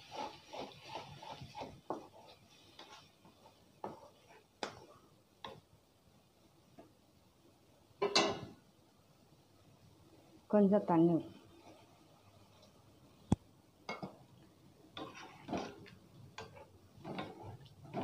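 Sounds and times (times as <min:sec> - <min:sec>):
wooden spatula scraping a pan: 0:00.0 - 0:05.7, 0:11.2 - 0:12.8, 0:14.9 - 0:18.0.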